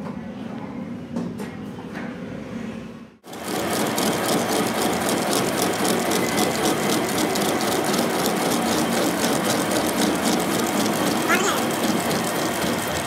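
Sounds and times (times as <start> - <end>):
metal lathe cutting metal: 3.3 - 13.0.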